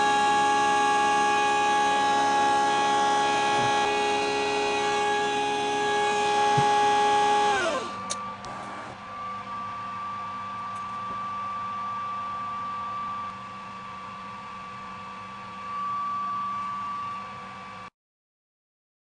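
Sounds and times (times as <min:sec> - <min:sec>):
machine hum: 0:00.0 - 0:09.4.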